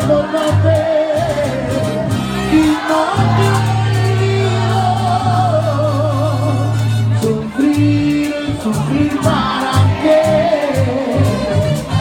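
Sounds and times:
live band playing: 0.0s - 12.0s
person singing with vibrato: 0.0s - 12.0s.

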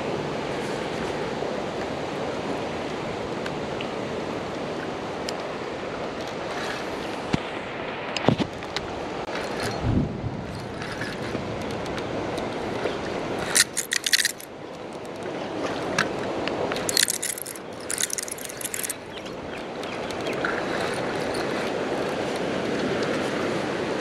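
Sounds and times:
river flowing: 0.0s - 24.0s
fishing reel clicking: 13.4s - 15.2s, 16.8s - 19.0s.

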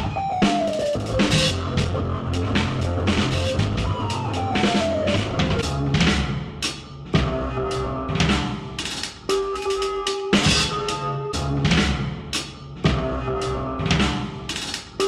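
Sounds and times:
held keyboard tone: 0.0s - 5.7s
keyboard note sliding downward: 0.0s - 5.7s
drum kit pounding: 0.0s - 15.0s.

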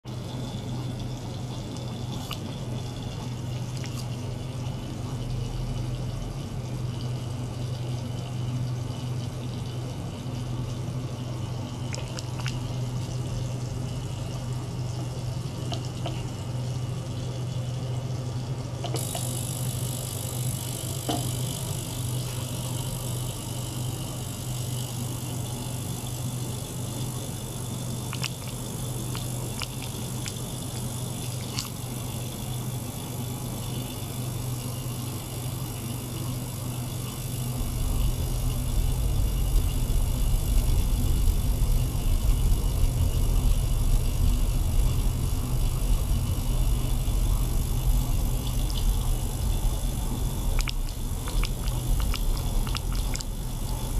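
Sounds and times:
motor hum: 0.0s - 53.9s
water circulating through tubing: 0.0s - 53.9s
deep rumble: 37.0s - 53.9s.

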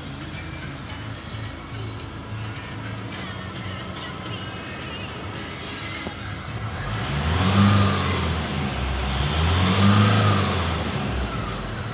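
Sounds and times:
engine revving: 0.0s - 11.9s.

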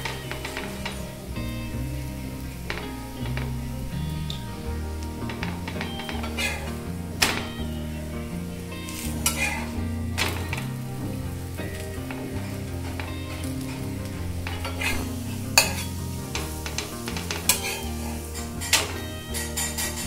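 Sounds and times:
background music with bass line: 0.0s - 20.0s
flatbread sizzling in butter: 8.7s - 20.0s
spatula scraping a pan: 14.5s - 20.0s.

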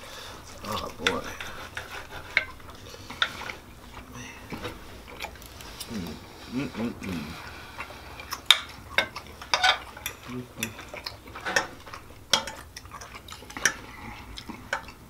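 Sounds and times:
cutlery clinking on plates: 8.5s - 14.9s.

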